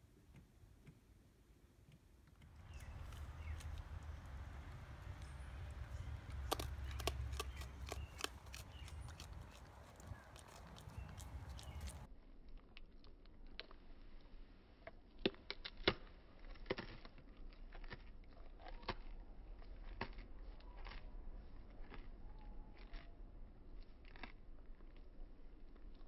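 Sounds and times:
raccoon chewing food: 2.2s - 26.0s
teeth clicking: 2.3s - 12.1s.

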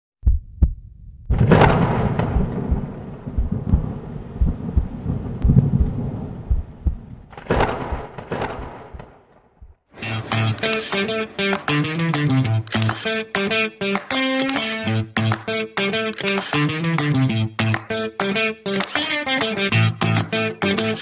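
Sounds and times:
sudden impact hit: 1.3s - 9.2s
thunder-like rumble: 1.3s - 9.8s
guitar music: 10.0s - 21.0s.

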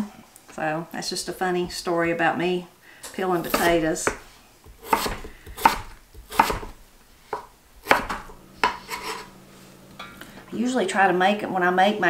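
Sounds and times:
knife chopping on wooden board: 3.4s - 9.3s.

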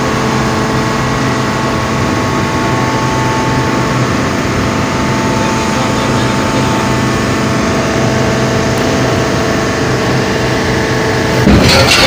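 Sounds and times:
heavy machinery humming: 0.0s - 12.0s
loud rushing clatter: 11.3s - 12.0s.

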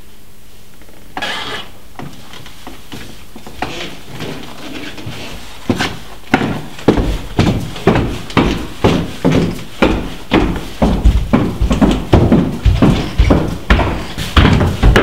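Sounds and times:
soft rustling and scuffing: 2.0s - 15.0s
high heels clicking on wood floor: 5.7s - 15.0s.

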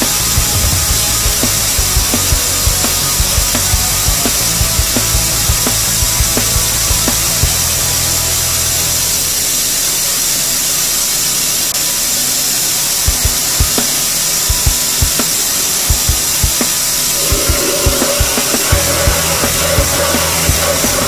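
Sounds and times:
background music with low beat: 0.0s - 8.8s, 13.1s - 21.0s
belt grinder grinding steel: 17.2s - 21.0s.

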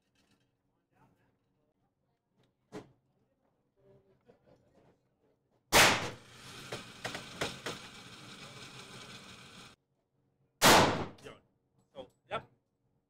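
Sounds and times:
gunshot with ringing tail: 5.7s - 6.2s, 10.6s - 11.2s.

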